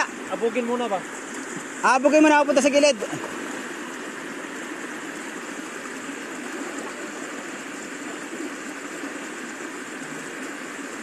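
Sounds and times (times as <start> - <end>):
water rushing over weir: 0.0 - 11.0.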